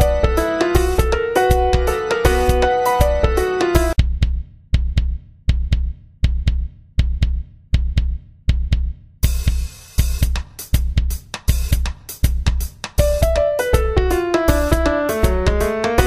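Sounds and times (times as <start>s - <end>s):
piano melody: 0.0s - 4.0s, 13.0s - 16.0s
drum beat: 0.0s - 16.0s.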